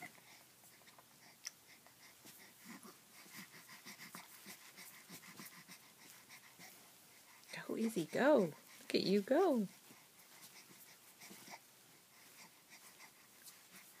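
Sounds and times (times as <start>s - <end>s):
baby breathing and grunting: 0.0s - 8.9s.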